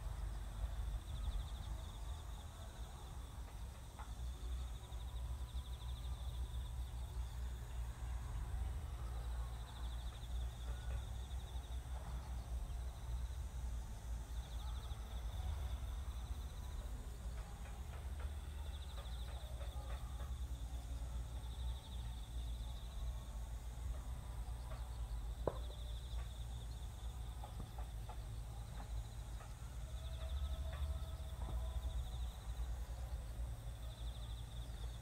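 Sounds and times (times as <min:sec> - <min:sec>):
faint knocks and clatter: 0:17.1 - 0:20.9, 0:23.9 - 0:31.8.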